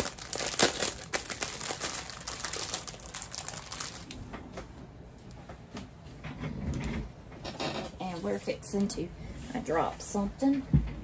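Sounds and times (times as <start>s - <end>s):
plastic packaging crinkling: 0.0s - 4.3s.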